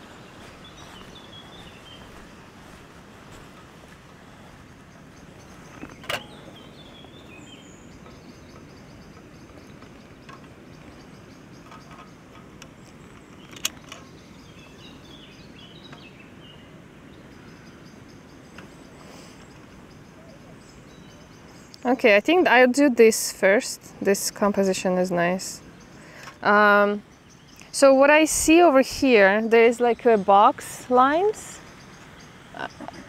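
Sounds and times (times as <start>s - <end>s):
low background hiss: 0.0s - 33.0s
small birds chirping: 0.0s - 33.0s.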